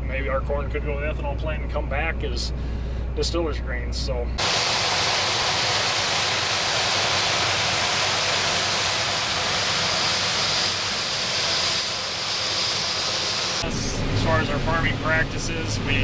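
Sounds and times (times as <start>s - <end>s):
harvester and tractor roaring: 4.4s - 16.0s.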